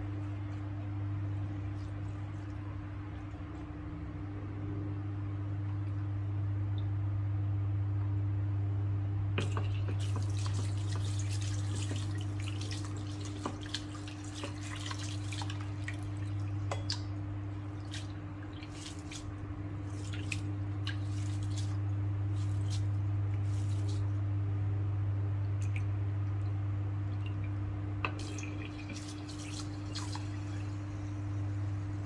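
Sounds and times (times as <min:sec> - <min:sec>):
steady low hum: 0:00.0 - 0:32.0
hands swishing rice in water: 0:09.4 - 0:17.0, 0:17.6 - 0:24.2, 0:28.2 - 0:30.8
water splashes and drips: 0:09.4 - 0:24.2, 0:25.4 - 0:31.0.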